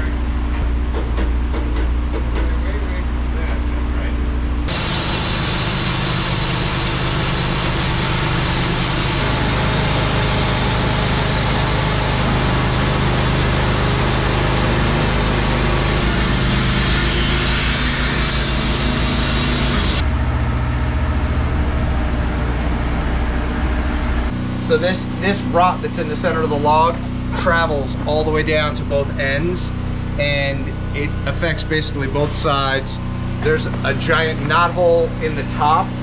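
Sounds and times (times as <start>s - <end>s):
band blade sawing wood: 4.7s - 20.0s
sawmill engine running: 4.7s - 36.0s.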